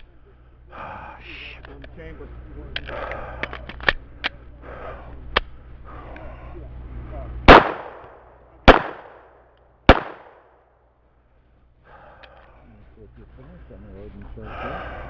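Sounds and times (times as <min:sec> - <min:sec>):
pistol shots: 0:07.5 - 0:10.6.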